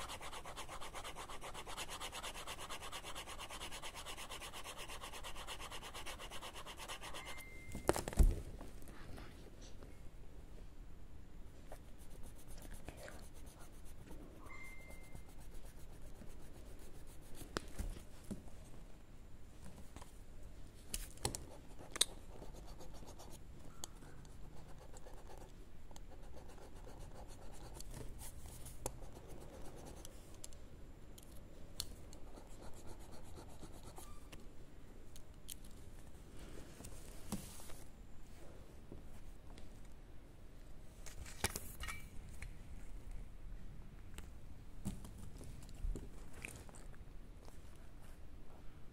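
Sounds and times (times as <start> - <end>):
eraser rubbing on paper: 0.0 - 7.3.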